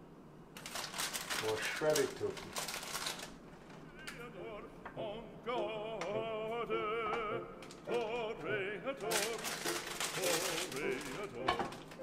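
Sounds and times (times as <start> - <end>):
opera singing with vibrato: 4.0 - 12.0
handling rustle: 9.0 - 12.0.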